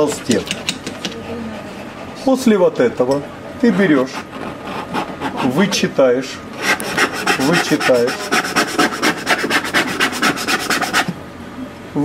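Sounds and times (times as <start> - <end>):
hand scrubbing paint into canvas: 6.6 - 11.1.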